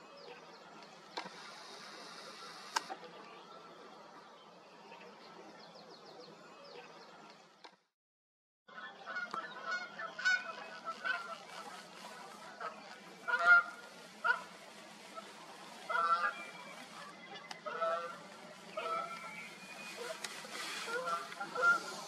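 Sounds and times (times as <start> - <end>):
pitched bird calls: 15.1 - 22.0
faint high birdsong: 15.9 - 22.0.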